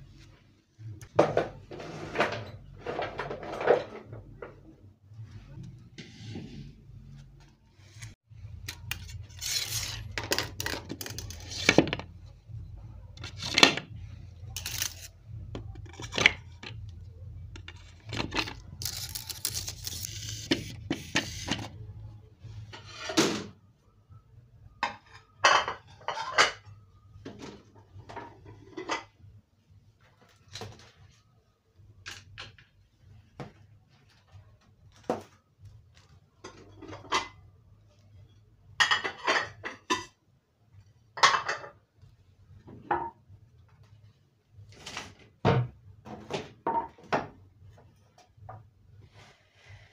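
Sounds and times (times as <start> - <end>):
dishes and cutlery clinking: 24.8 - 26.7, 38.8 - 40.2.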